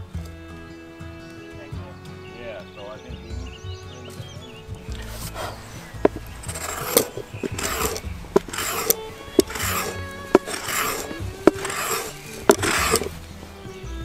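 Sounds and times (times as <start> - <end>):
background music with clicking beat: 0.0 - 13.8
knife rasping on wood: 5.0 - 13.2.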